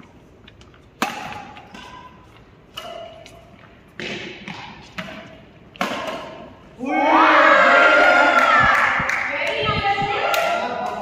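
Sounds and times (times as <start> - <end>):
racquets hitting shuttlecock: 0.9 - 6.7.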